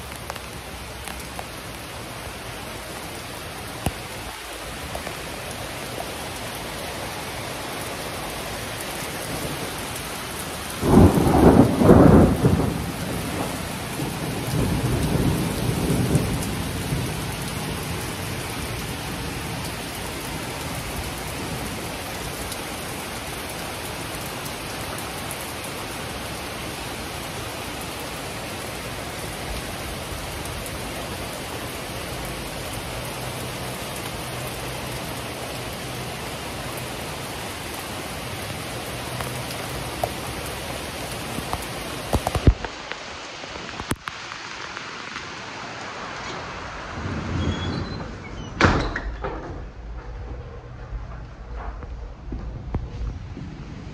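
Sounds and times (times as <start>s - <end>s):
heavy rain: 0.0s - 53.9s
rumbling thunderclap: 10.8s - 18.8s, 46.7s - 53.9s.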